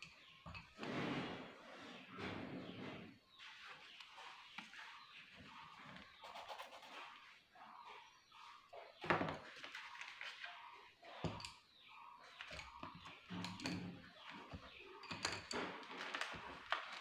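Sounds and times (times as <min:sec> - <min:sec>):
paper rustling: 0:09.4 - 0:10.6, 0:15.9 - 0:17.0.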